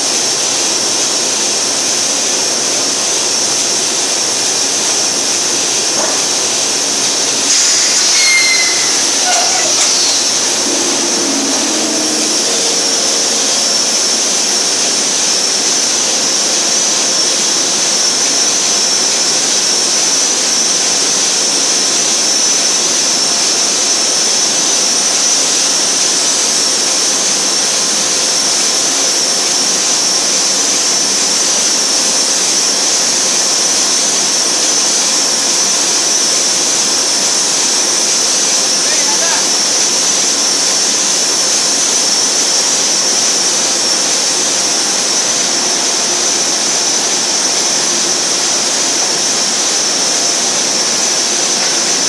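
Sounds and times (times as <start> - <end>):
high-pitched hiss: 4.8 - 16.5
paper machine industrial din: 4.8 - 16.7.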